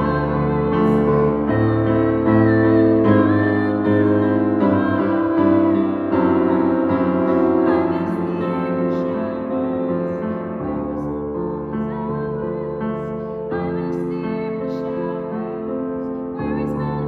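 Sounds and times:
grand piano chords: 0.0 - 17.0.

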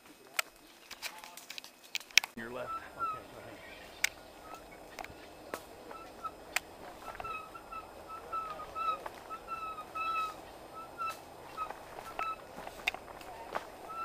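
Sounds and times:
bike squeaking: 2.4 - 14.0
bike clicks and rattles: 11.7 - 13.7.

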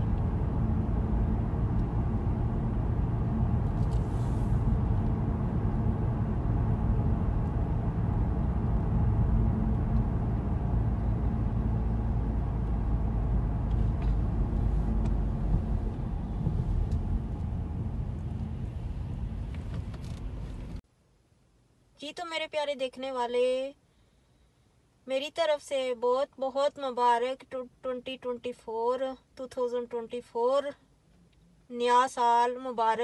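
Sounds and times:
car engine and tyre rumble: 0.0 - 20.8.

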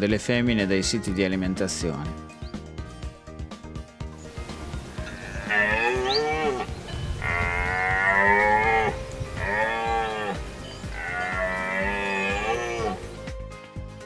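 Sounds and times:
deer stag roaring: 5.0 - 13.1.

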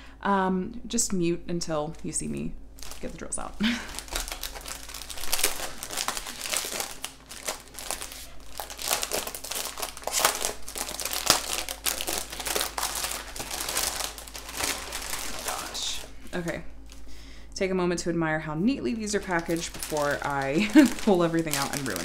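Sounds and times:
plastic packaging crinkling: 2.8 - 17.1, 19.0 - 22.0.

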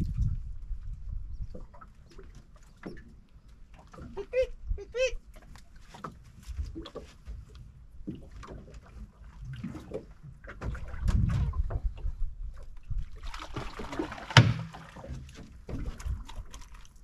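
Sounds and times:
water sloshing against hull: 0.0 - 17.0
knocks and thumps on boat: 5.4 - 16.7.

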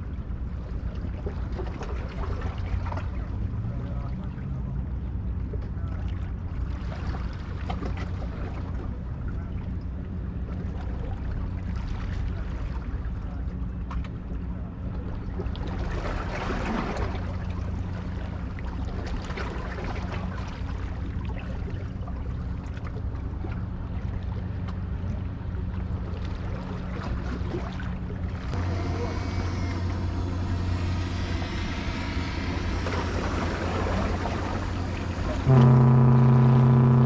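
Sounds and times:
ship engines droning: 16.2 - 37.0.

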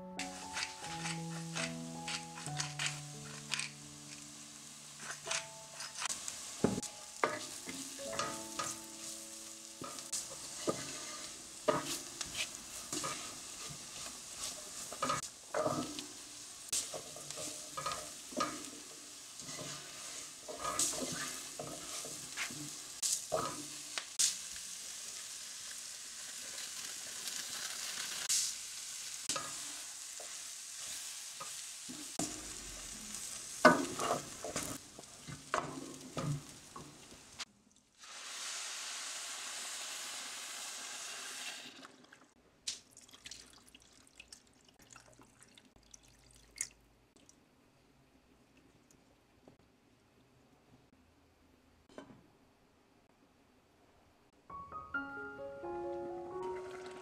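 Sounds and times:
vegetables sizzling in a pot: 0.0 - 42.8
wooden spoon scraping a pot: 0.3 - 3.8, 10.2 - 16.0, 16.8 - 23.7.

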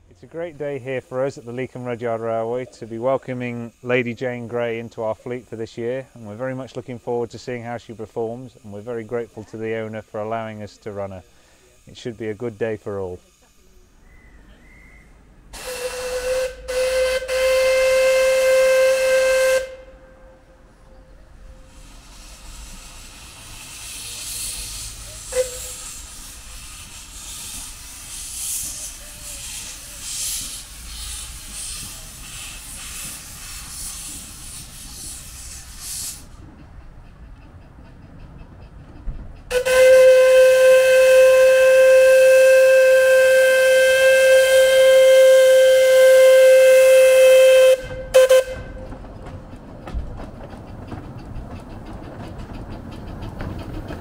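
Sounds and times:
steam locomotive hissing: 0.0 - 54.0
steam whistle blast: 14.0 - 36.3, 39.5 - 48.9.

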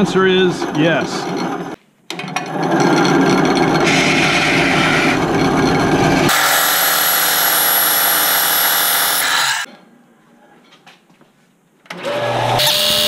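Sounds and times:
power tool running: 2.4 - 9.7, 11.9 - 13.0.

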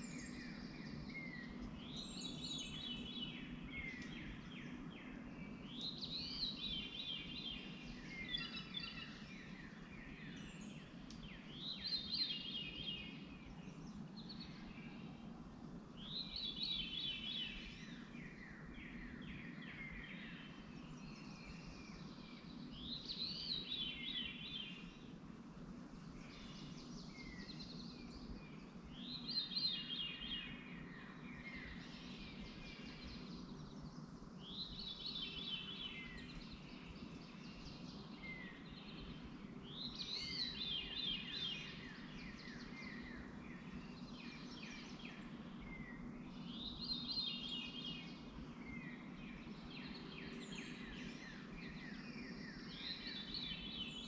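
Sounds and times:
bird chirps: 0.0 - 15.2
songbird singing: 0.0 - 54.0
steady low hum: 0.0 - 54.0.

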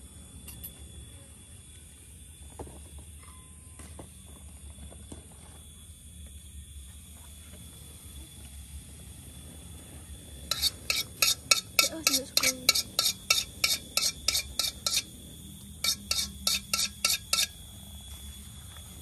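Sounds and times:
metal spoon scraping a wok: 10.5 - 15.1, 15.8 - 17.6.

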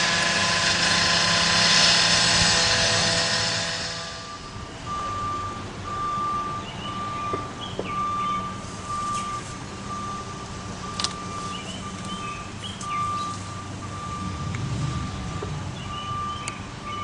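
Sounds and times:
engine rumbling: 0.0 - 17.0
reversing alarm beeping: 2.8 - 17.0
bird chirps: 6.6 - 9.4, 11.3 - 13.6, 15.1 - 17.0.

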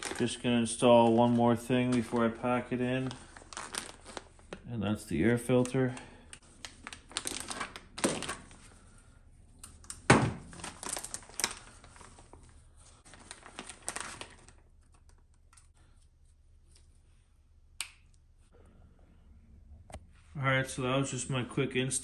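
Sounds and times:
plastic bag crinkling: 0.0 - 4.6, 5.5 - 8.6, 10.4 - 15.2.

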